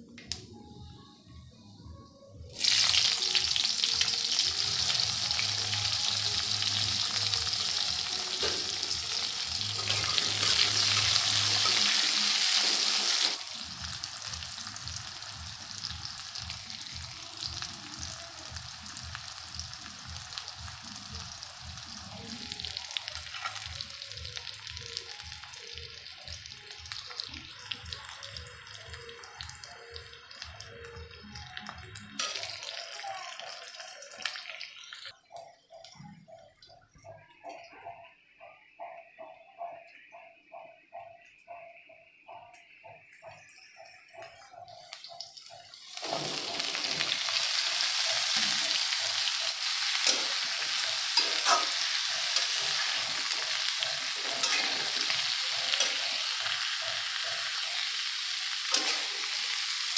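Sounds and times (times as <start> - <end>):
onions sizzling in hot oil: 2.5 - 35.1, 43.2 - 59.9
metal spatula stirring: 48.0 - 56.6.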